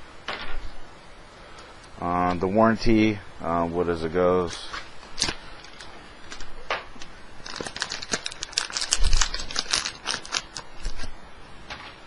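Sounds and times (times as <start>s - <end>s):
plastic bag crinkling: 4.4s - 11.1s.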